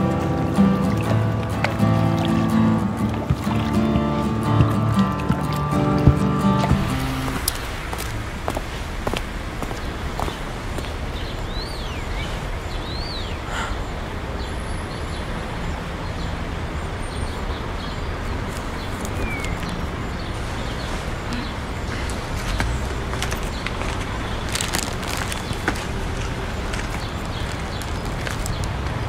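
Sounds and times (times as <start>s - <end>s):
city traffic hum: 0.0s - 29.0s
bird chirps: 11.2s - 15.3s, 18.8s - 25.7s.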